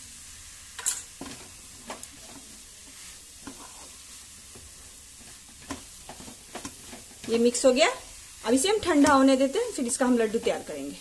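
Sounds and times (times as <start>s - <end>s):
faint steady hiss: 0.0s - 11.0s
wooden spatula scraping a pan: 1.0s - 11.0s.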